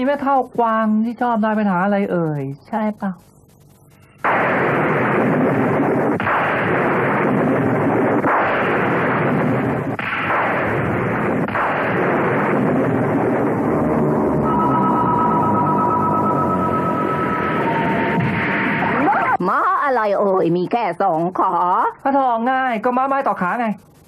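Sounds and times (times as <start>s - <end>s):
cartoon booming blasts: 4.2s - 14.8s, 17.3s - 19.4s.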